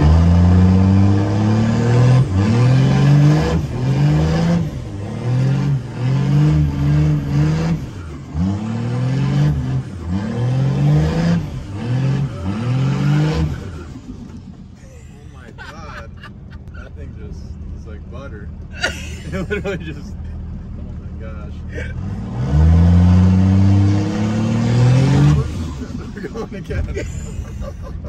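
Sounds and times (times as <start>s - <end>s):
pickup truck engine revving: 0.0s - 14.5s, 21.9s - 27.8s.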